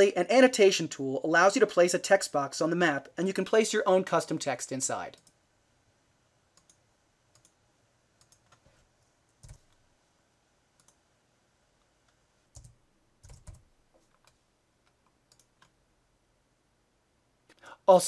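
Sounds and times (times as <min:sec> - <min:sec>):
faint keyboard typing: 0:05.1 - 0:05.4, 0:06.5 - 0:09.9, 0:10.7 - 0:11.1, 0:11.8 - 0:15.8
mouse clicks: 0:10.8 - 0:11.0.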